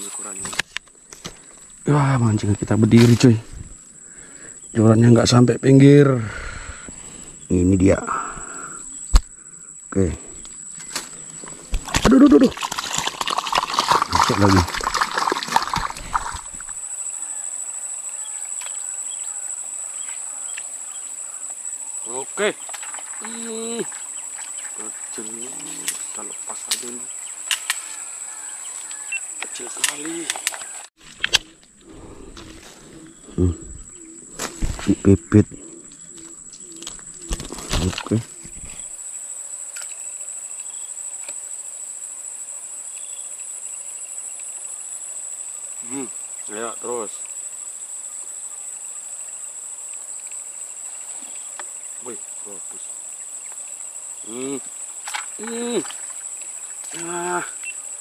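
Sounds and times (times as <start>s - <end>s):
high-pitched insect drone: 0.0s - 58.0s
noisy rustling: 30.3s - 39.0s.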